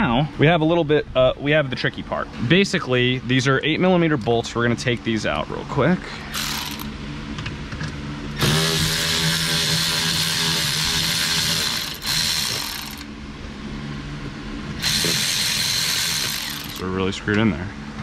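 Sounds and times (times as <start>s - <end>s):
electric ratchet motor whir: 6.3s - 6.9s, 8.4s - 13.1s, 14.8s - 16.9s.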